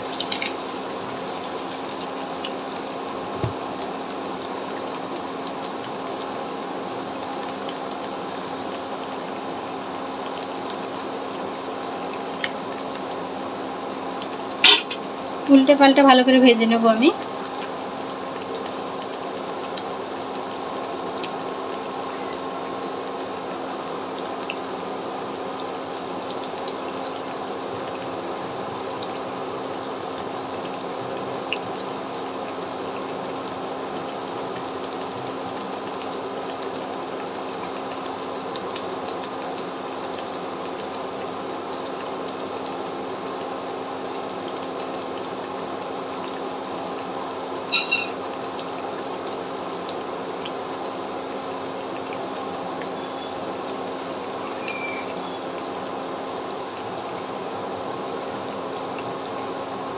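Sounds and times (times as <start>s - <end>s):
hot oil bubbling and sizzling: 0.0s - 59.9s
tap: 3.4s - 3.6s.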